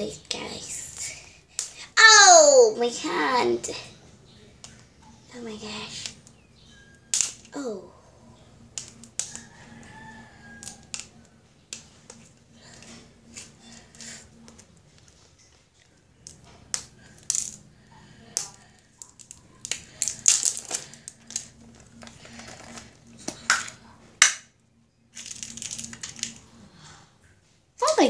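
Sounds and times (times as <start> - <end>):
plastic wrapper crinkling: 18.5 - 23.8, 25.1 - 26.5.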